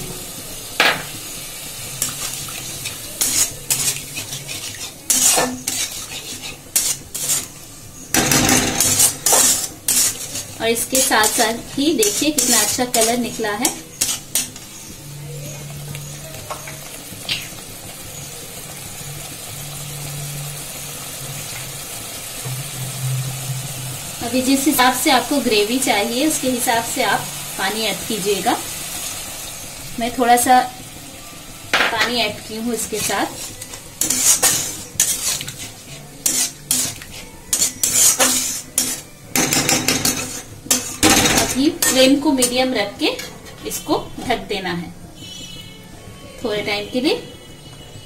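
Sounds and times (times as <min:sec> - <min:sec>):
curry simmering and sizzling: 0:00.0 - 0:48.0
metal spatula stirring in pan: 0:01.9 - 0:17.6, 0:32.0 - 0:44.0
spatula tapping pan: 0:32.8 - 0:42.1.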